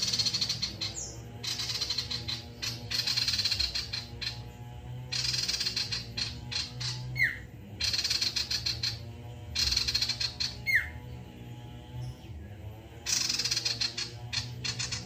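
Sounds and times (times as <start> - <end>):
bird rattling chatter: 0.0 - 4.5, 5.1 - 7.2, 13.1 - 15.0
steady low hum: 0.0 - 15.0.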